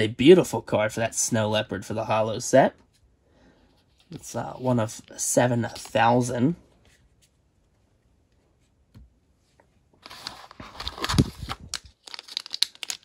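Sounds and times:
foil crinkling clicks: 0:10.1 - 0:13.0.

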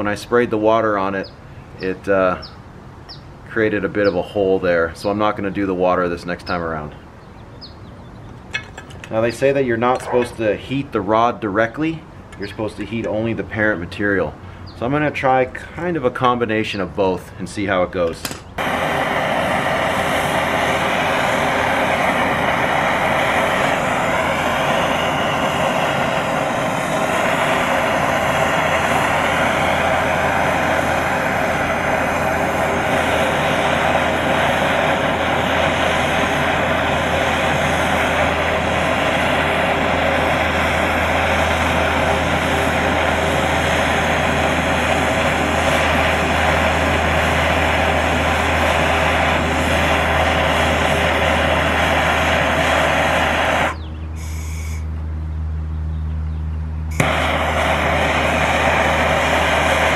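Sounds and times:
gas torch flame rushing: 0:18.3 - 0:54.8, 0:56.9 - 0:59.9.

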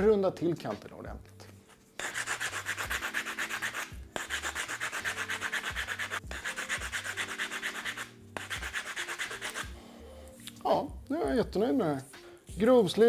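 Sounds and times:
sandpaper rubbing on wood: 0:02.0 - 0:09.7.

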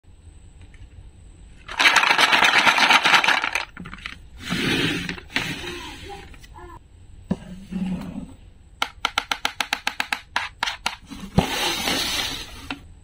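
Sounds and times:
plastic toys clattering in a tray: 0:01.7 - 0:04.2.

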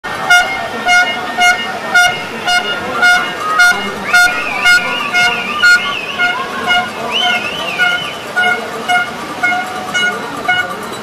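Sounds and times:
horn tooting short blasts: 0:00.1 - 0:11.0
high warbling whistle: 0:02.0 - 0:08.4.

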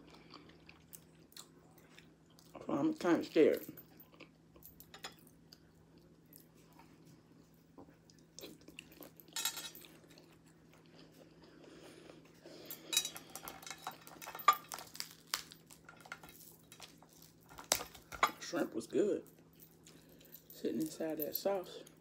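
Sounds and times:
chewing: 0:00.0 - 0:02.7, 0:03.8 - 0:07.1, 0:07.8 - 0:17.8.

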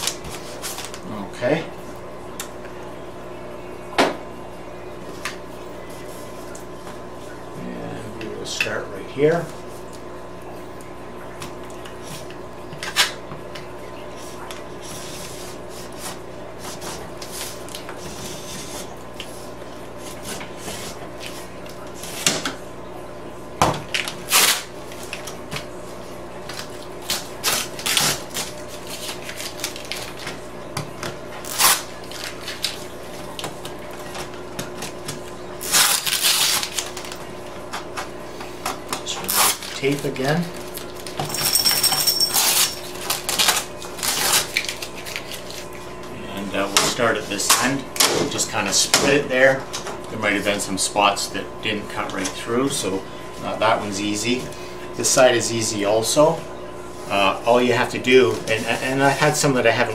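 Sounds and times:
steady low hum: 0:00.0 - 0:59.9
masking tape being pulled: 0:31.4 - 0:31.9, 0:35.6 - 0:37.1.

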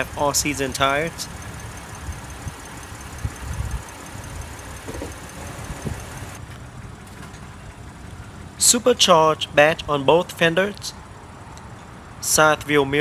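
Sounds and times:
car engine idling: 0:00.0 - 0:08.7
soft thumps: 0:04.8 - 0:06.1.

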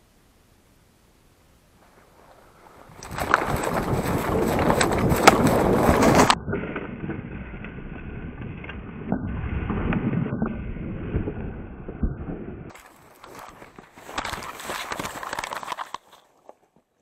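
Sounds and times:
bird wings flapping: 0:01.8 - 0:06.4, 0:12.7 - 0:16.2
footsteps running through dry grass: 0:01.8 - 0:06.4, 0:12.7 - 0:16.9
wind on microphone: 0:02.2 - 0:12.7.

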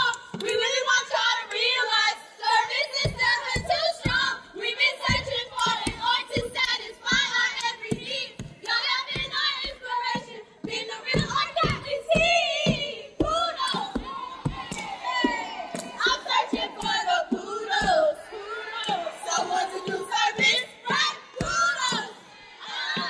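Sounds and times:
hands clapping: 0:00.0 - 0:00.8, 0:13.7 - 0:17.0
women chanting in unison: 0:00.0 - 0:23.0
feet stomping: 0:05.0 - 0:18.2.

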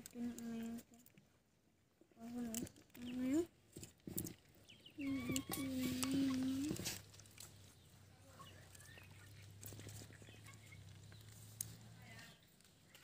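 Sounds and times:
hands sorting wet fish in basin: 0:02.2 - 0:13.0
faint bird chirps: 0:04.6 - 0:06.8, 0:07.5 - 0:12.6.

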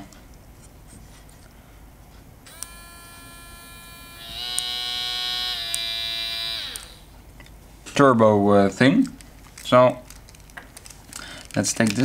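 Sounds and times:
shaver switch click: 0:02.5 - 0:02.8, 0:04.4 - 0:04.8, 0:05.5 - 0:05.9
shaver motor whine: 0:02.5 - 0:07.2.

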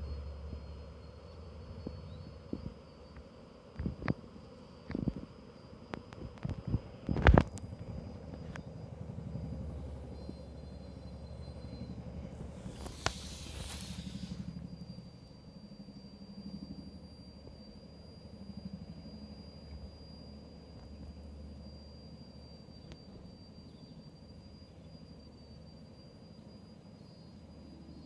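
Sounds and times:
helicopter rotor beating: 0:07.6 - 0:16.9
brief hiss: 0:12.4 - 0:14.6.

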